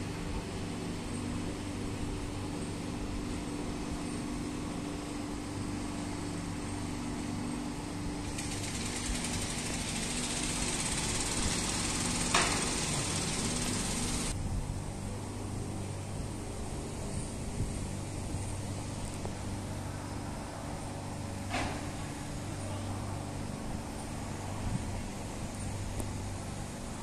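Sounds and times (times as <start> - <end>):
engine humming: 0.0 - 27.0
high hiss: 8.2 - 14.4.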